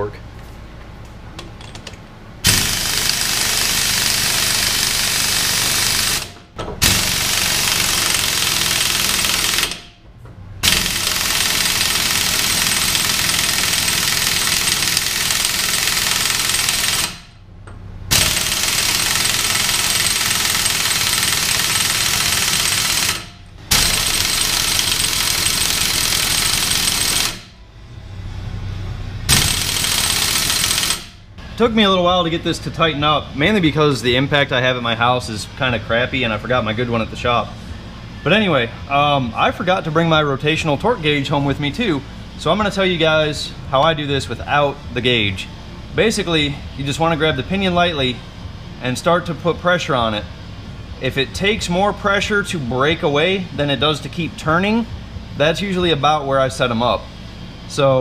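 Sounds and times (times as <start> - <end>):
impact wrench hammering: 1.4 - 10.0, 10.6 - 27.6, 29.3 - 31.2.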